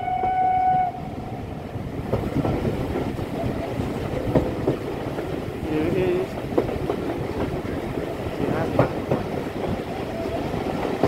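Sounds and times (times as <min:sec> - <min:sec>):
steam locomotive whistle: 0:00.0 - 0:01.2
train rumbling on rails: 0:00.0 - 0:11.0.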